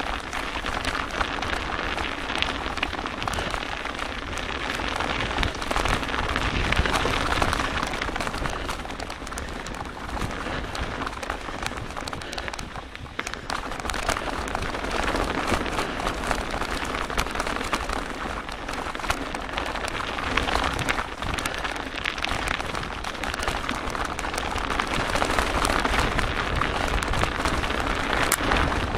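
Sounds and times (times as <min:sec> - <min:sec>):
wind on microphone: 0:00.0 - 0:18.6, 0:19.2 - 0:28.9
bike riding rush and rattles: 0:00.0 - 0:28.9.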